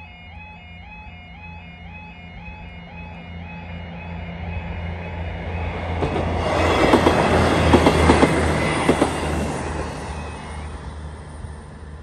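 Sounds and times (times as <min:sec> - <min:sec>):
train rushing past: 0:02.4 - 0:12.0
train wheels clicking on rail joints: 0:05.4 - 0:10.4.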